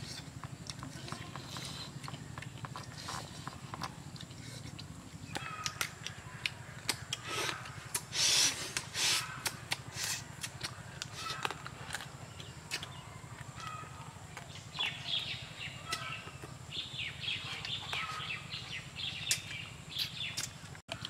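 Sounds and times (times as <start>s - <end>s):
person chewing with wet smacking: 0.0s - 15.0s, 19.2s - 21.0s
birds chirping: 0.0s - 21.0s.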